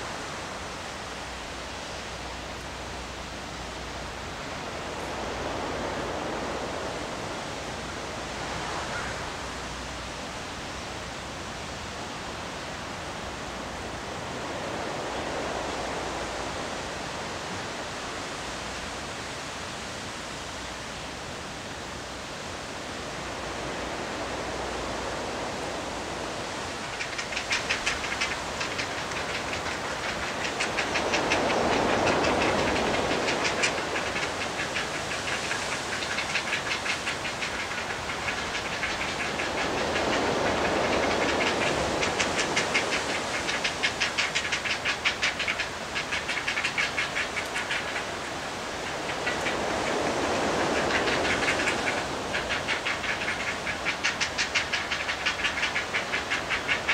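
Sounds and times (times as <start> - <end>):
distant surf rushing: 0.0 - 56.9
heron chicks clacking calls: 26.7 - 56.9.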